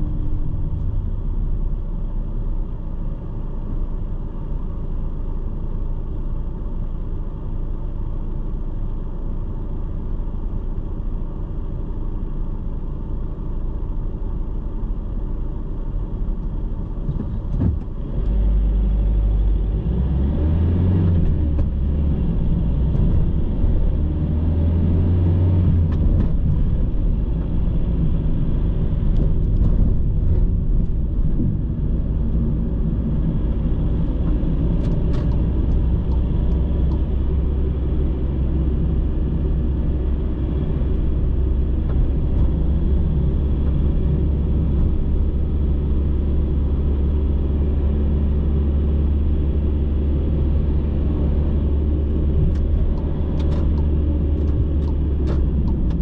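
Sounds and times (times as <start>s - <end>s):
car engine rumble: 0.0s - 56.0s.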